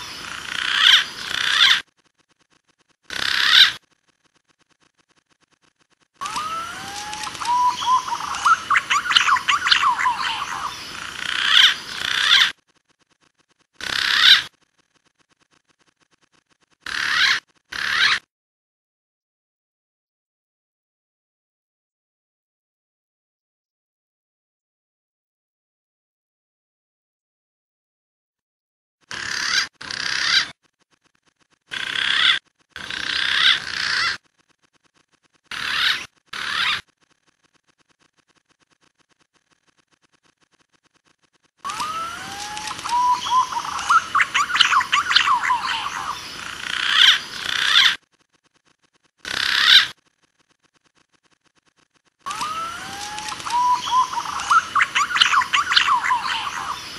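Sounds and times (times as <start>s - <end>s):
rasping warbling pigeon calls: 0.0s - 1.9s, 3.1s - 3.9s, 6.2s - 12.6s, 13.8s - 14.6s, 16.8s - 18.3s, 29.0s - 30.6s, 31.7s - 34.3s, 35.4s - 36.9s, 41.7s - 48.1s, 49.2s - 50.1s, 52.3s - 56.9s
pigeons whistling calls: 6.2s - 10.8s, 41.7s - 46.2s, 52.3s - 56.9s.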